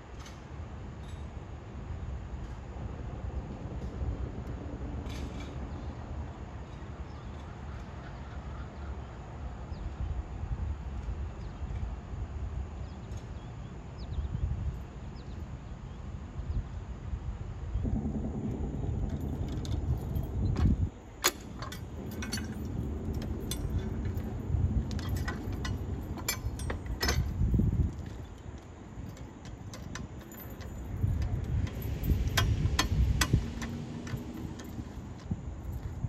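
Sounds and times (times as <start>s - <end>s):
heavy low thuds of lever: 17.8s - 23.6s
metal clinks and clanks: 17.9s - 28.4s, 29.0s - 36.0s.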